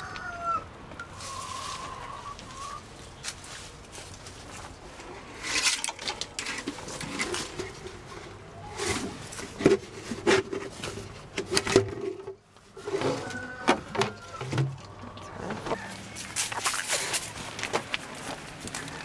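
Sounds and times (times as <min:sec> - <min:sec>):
rubbing and scraping: 0:03.7 - 0:14.8.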